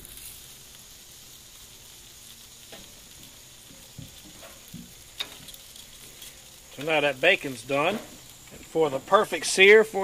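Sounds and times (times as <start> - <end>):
food sizzling on grill: 0.0 - 10.0
small ticks: 2.6 - 6.9.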